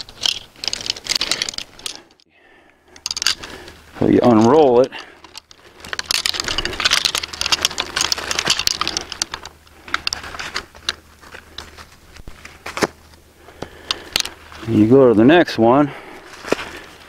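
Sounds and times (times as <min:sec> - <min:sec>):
plastic netting clicking and rustling: 0:00.0 - 0:02.0, 0:05.2 - 0:13.0.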